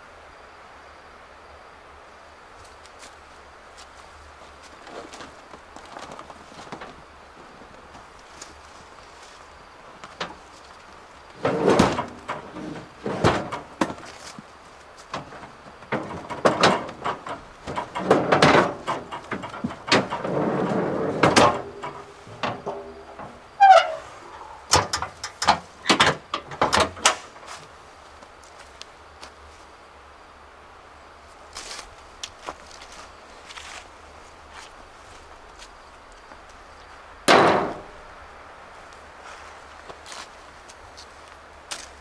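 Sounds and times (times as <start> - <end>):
objects knocking and scraping: 11.3 - 27.6.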